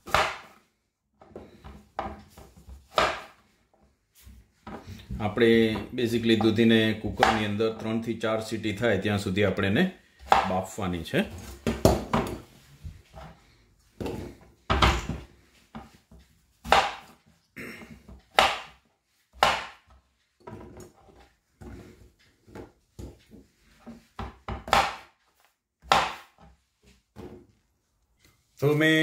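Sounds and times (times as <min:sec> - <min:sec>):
knife chopping on wooden board: 0:00.0 - 0:00.6, 0:02.9 - 0:03.4, 0:06.4 - 0:07.5, 0:10.2 - 0:10.6, 0:11.6 - 0:12.4, 0:16.6 - 0:17.2, 0:18.3 - 0:20.6, 0:23.8 - 0:25.1, 0:25.8 - 0:26.5.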